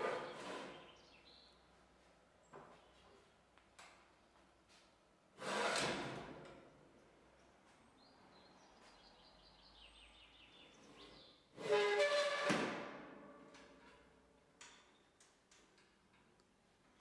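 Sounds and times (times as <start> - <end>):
metal blast gate sliding: 11.6 - 13.8.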